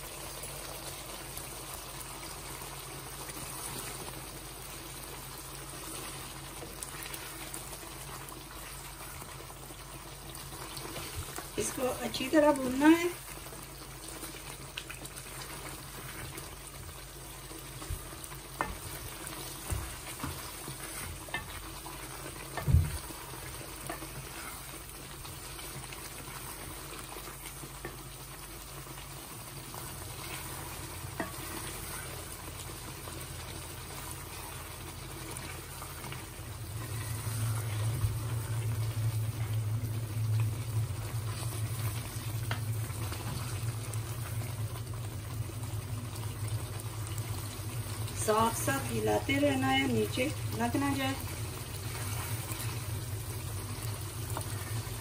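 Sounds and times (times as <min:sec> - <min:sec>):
food sizzling in a pan: 0:00.0 - 0:55.0
low steady hum: 0:04.6 - 0:55.0
wooden spoon stirring: 0:05.8 - 0:44.6, 0:48.2 - 0:53.0.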